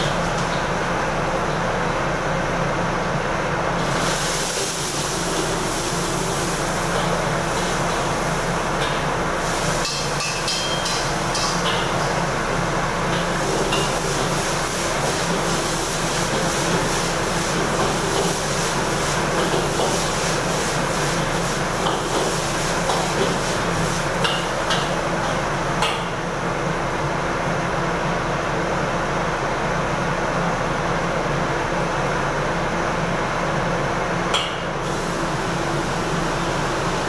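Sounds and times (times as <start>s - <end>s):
gas burners and fan roaring: 0.0s - 37.0s
metal ladle clanking on wok: 9.8s - 11.9s.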